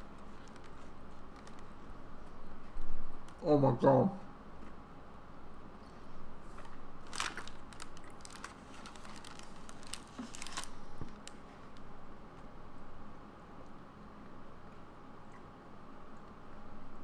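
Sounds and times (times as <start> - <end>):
person chewing cookie: 7.1 - 11.5.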